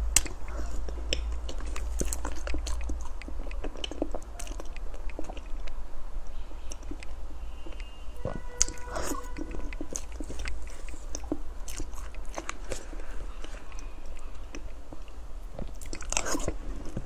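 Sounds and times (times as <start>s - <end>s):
mouth clicks and smacks: 0.0s - 17.0s
wet chewing: 0.0s - 17.0s
biting into cake: 6.7s - 17.0s.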